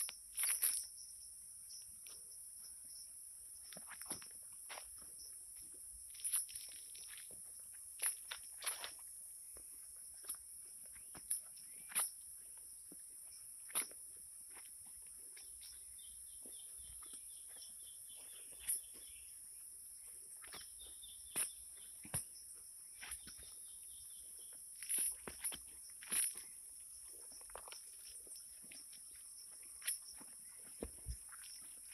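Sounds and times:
footsteps on soil: 12.8s - 19.4s, 24.8s - 31.9s.

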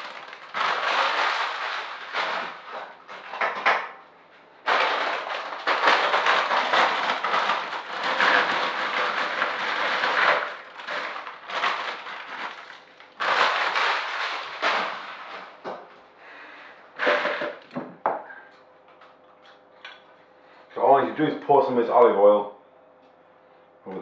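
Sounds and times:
plastic bag crinkling: 0.0s - 3.4s, 4.6s - 15.7s
chips clattering into a bowl: 0.0s - 3.6s, 4.7s - 15.6s.

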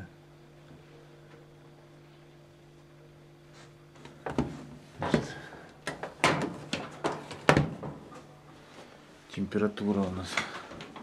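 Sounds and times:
refrigerator compressor humming: 0.0s - 11.0s.

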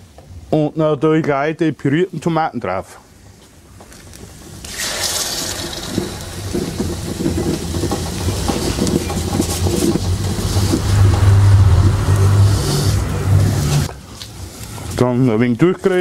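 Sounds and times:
sizzling and hissing in a pan: 4.3s - 11.0s
tomato puree pouring: 4.6s - 8.4s
low rumble: 5.7s - 14.0s.

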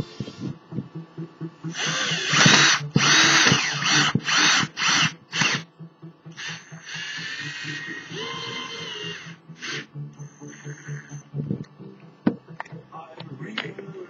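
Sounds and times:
power drill driving a screw: 1.7s - 5.6s, 6.4s - 11.2s.

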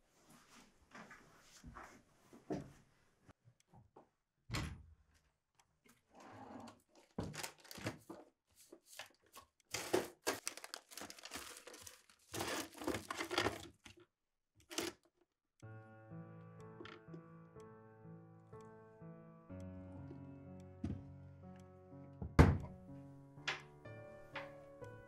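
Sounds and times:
objects rustling in wooden drawer: 9.0s - 13.9s
loud thunk: 22.2s - 22.7s.

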